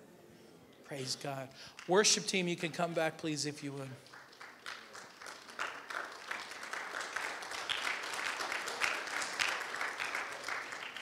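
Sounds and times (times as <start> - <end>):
people clapping: 3.6 - 11.0.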